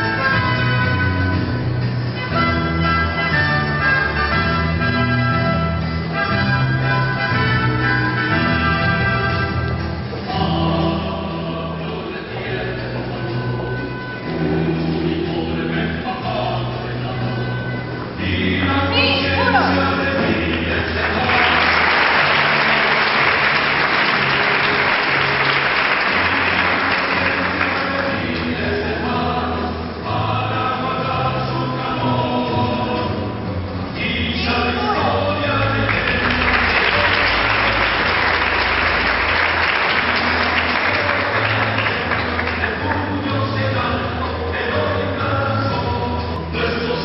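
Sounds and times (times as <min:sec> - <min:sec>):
choral music: 0:00.0 - 0:47.0
crowd applauding: 0:20.4 - 0:28.3, 0:35.6 - 0:43.1.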